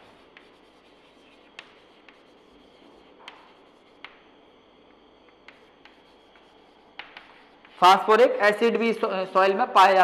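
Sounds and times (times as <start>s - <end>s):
chalk tapping on board: 0.0s - 7.8s
chalk scratching on blackboard: 0.0s - 9.6s.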